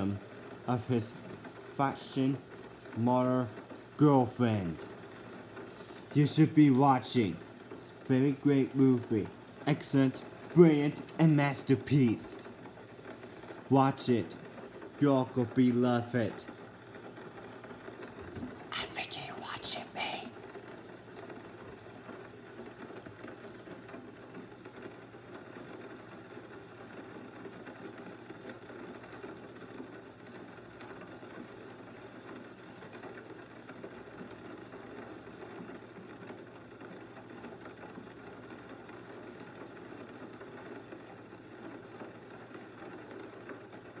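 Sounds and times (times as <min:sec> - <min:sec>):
room tone hiss: 0:00.0 - 0:44.0.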